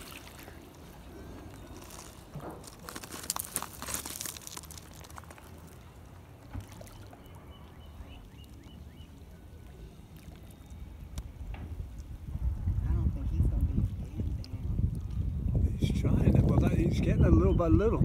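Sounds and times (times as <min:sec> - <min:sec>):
water splashing and lapping: 0:00.0 - 0:12.2.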